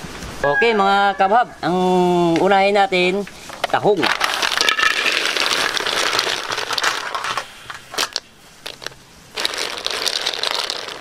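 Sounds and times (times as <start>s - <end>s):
mussel shells clattering in wok: 4.0s - 11.0s.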